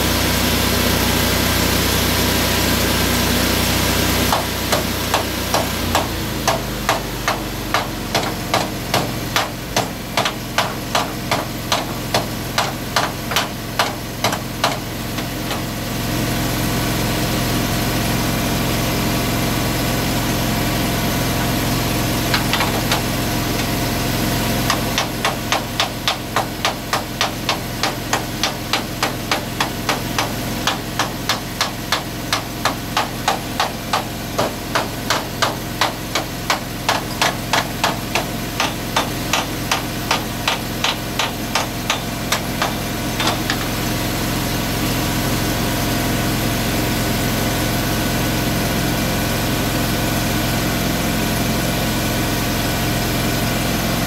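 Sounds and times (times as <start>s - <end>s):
engine running: 0.0s - 54.0s
regular metallic knocks: 4.3s - 15.7s, 22.3s - 23.7s, 24.7s - 43.7s.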